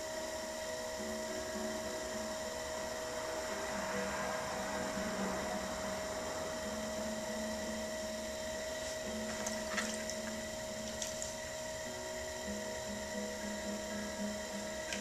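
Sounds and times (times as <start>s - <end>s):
pottery wheel motor humming: 0.0s - 15.0s
water splashing and dripping: 9.4s - 11.4s.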